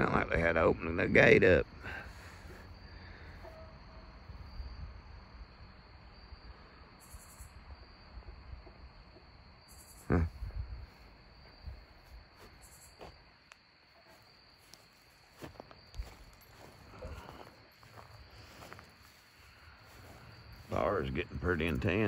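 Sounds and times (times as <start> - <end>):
crickets trilling: 0.0 - 22.0
low outdoor rumble: 14.6 - 22.0.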